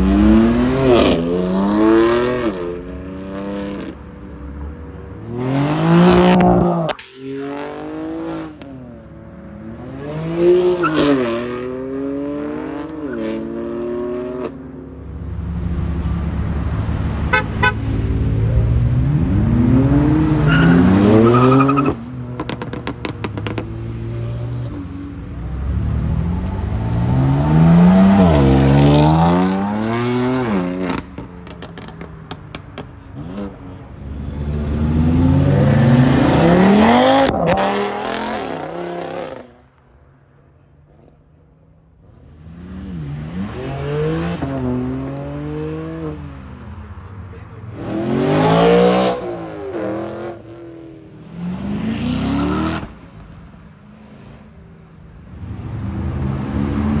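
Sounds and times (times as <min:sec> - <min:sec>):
cars accelerating hard: 0:00.0 - 0:39.7, 0:42.1 - 0:53.1, 0:55.2 - 0:57.0
exhaust crackles and pops: 0:22.4 - 0:23.7, 0:30.8 - 0:33.1.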